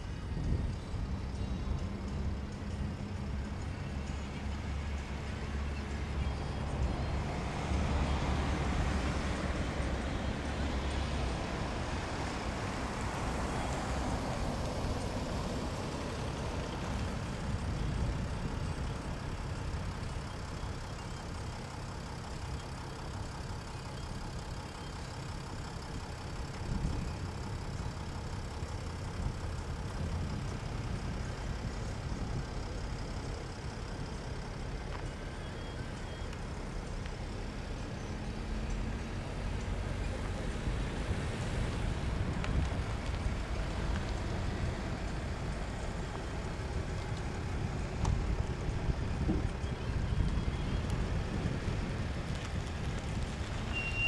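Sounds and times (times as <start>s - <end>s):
low rumble of traffic: 0.0s - 54.0s
vehicle passing by: 7.0s - 16.9s.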